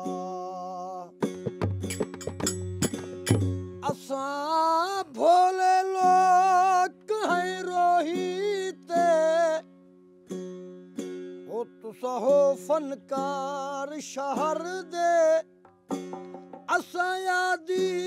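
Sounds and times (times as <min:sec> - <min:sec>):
man singing folk phrases: 0:00.0 - 0:01.2, 0:03.8 - 0:09.8, 0:11.4 - 0:15.6, 0:16.7 - 0:18.0.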